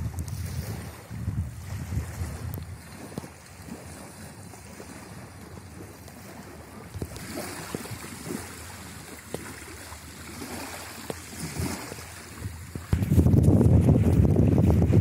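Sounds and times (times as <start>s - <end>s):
small waves lapping on sand: 0.0s - 15.0s
wind buffeting microphone: 0.0s - 15.0s.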